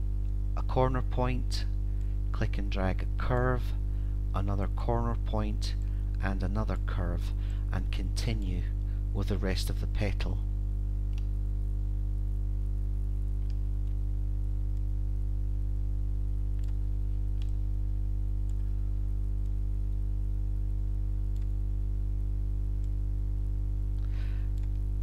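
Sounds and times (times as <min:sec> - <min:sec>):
low electrical hum: 0:00.0 - 0:25.0
computer mouse clicks: 0:16.6 - 0:16.8, 0:17.4 - 0:17.6, 0:23.9 - 0:24.9.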